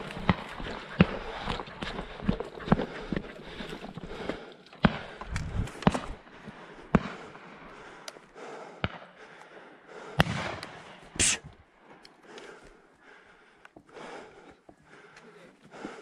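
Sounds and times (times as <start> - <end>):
brief hiss: 11.2 - 11.5.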